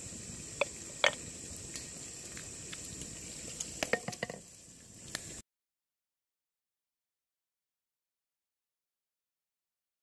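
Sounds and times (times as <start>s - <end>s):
steady hiss: 0.0s - 5.4s.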